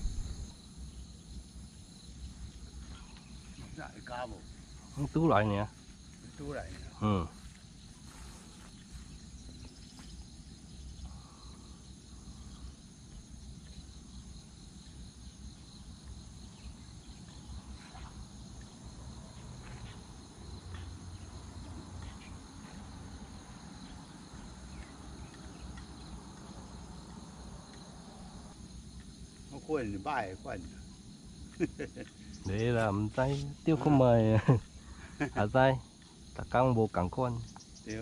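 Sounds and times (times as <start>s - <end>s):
low outdoor rumble: 0.0s - 0.6s
insects trilling: 0.0s - 38.0s
faint ticks: 23.6s - 29.5s, 37.4s - 38.0s.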